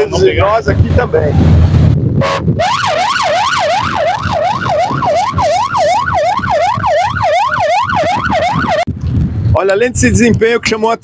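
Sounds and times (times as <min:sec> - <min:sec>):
police siren yelping: 0:02.2 - 0:08.9.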